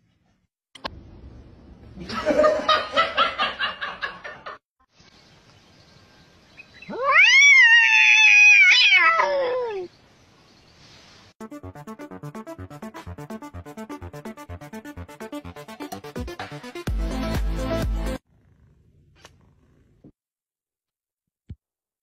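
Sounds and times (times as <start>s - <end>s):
cat yowling: 6.9s - 9.9s.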